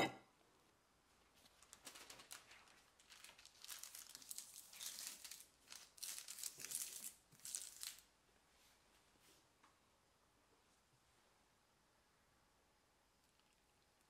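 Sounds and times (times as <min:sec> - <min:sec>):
parchment paper crinkling: 0:01.2 - 0:08.1.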